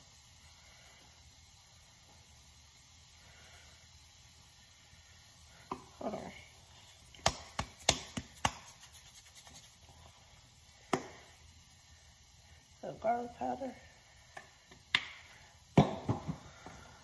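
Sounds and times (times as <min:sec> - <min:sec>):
seasoning shaken out: 0:06.2 - 0:10.4.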